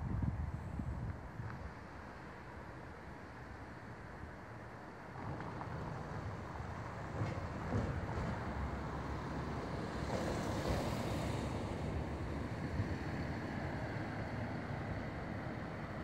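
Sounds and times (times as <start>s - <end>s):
wind buffeting microphone: 0.0s - 1.7s.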